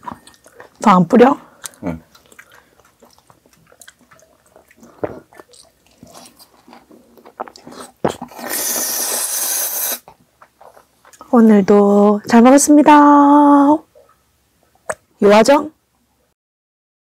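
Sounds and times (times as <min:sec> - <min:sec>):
chewing with wet mouth clicks: 0:00.0 - 0:08.7
loud steady hiss: 0:08.4 - 0:10.1.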